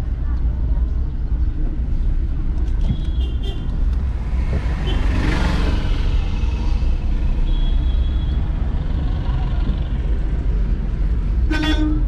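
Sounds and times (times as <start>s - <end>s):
road vehicle rumble: 0.0s - 12.0s
vehicle passing by: 4.0s - 7.4s.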